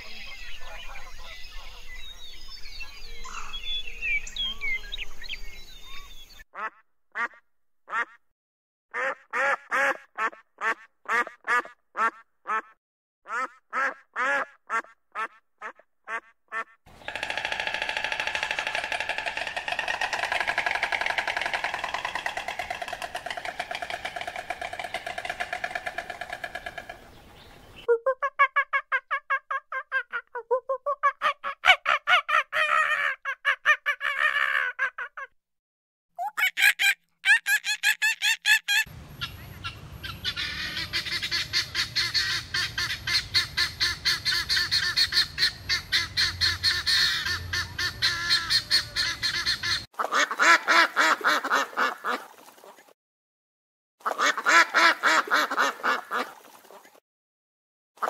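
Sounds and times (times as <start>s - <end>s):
guineafowl cackling: 16.1s - 27.2s, 36.2s - 52.2s, 54.0s - 56.3s
quick repeated animal calls: 17.0s - 27.2s.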